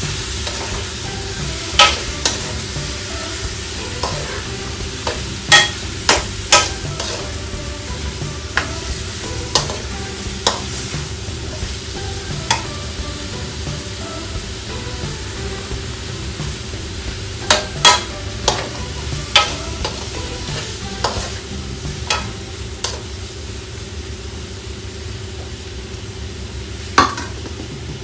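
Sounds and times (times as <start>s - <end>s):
food sizzling in a wok: 0.0s - 28.0s
metal spoon scraping pan: 3.9s - 7.3s, 17.5s - 21.4s.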